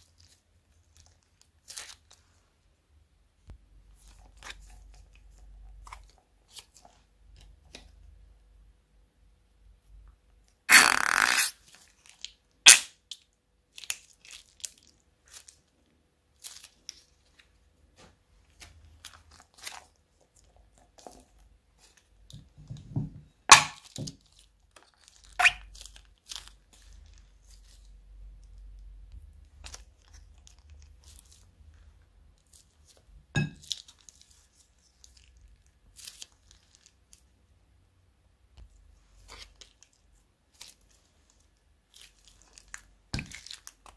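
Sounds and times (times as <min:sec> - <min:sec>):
plastic bags crinkling: 0:39.3 - 0:43.9.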